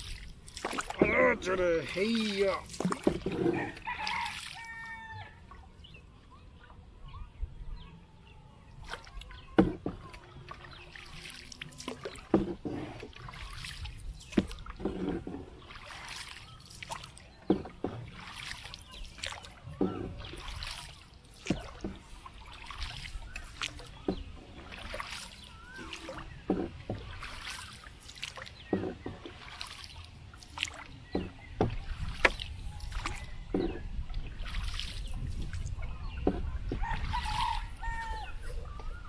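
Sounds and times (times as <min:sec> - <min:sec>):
water sloshing and splashing: 0:00.0 - 0:07.6, 0:08.2 - 0:39.0
paddle knocking against wooden boat: 0:00.6 - 0:03.9, 0:09.5 - 0:10.6, 0:12.0 - 0:13.2, 0:14.3 - 0:15.8, 0:17.4 - 0:18.6, 0:19.2 - 0:20.6, 0:21.4 - 0:25.1, 0:25.8 - 0:27.6, 0:28.6 - 0:29.7, 0:30.6 - 0:34.6, 0:35.4 - 0:37.4.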